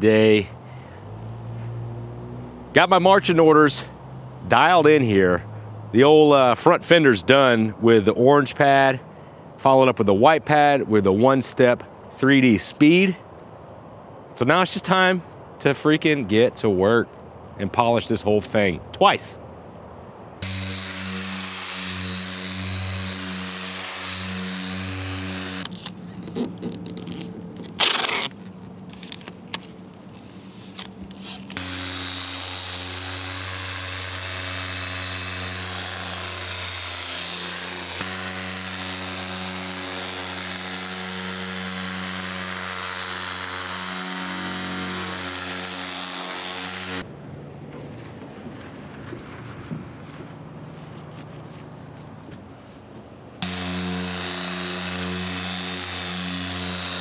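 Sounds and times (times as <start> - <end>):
polisher running: 20.4 - 25.7, 31.6 - 47.0, 53.4 - 57.0.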